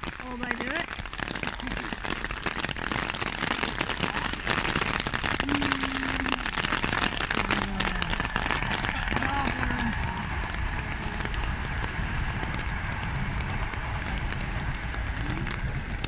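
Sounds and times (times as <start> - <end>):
dense crackling noise: 0.0 - 16.0.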